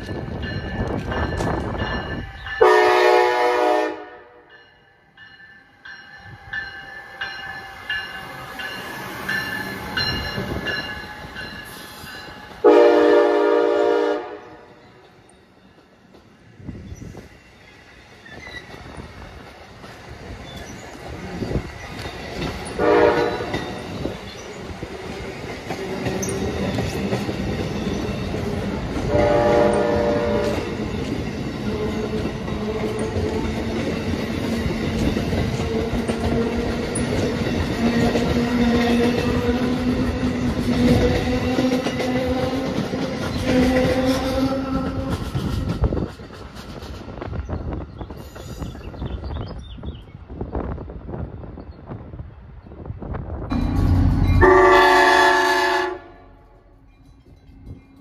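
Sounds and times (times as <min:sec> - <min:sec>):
train coaches rumbling and clattering: 0:00.0 - 0:58.0
locomotive horn blasts: 0:02.6 - 0:04.5, 0:12.6 - 0:14.7, 0:22.8 - 0:23.6, 0:29.0 - 0:30.7, 0:54.4 - 0:56.6.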